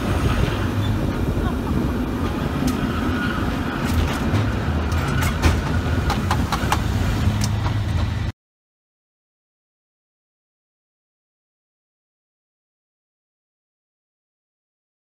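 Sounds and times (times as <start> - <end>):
cable car rumbling on tracks: 0.0 - 8.3
metallic clicks and clanks: 3.8 - 8.1.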